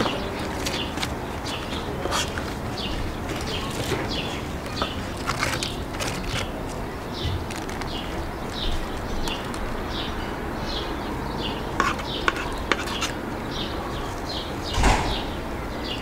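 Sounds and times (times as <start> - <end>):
outdoor background noise: 0.0 - 16.0.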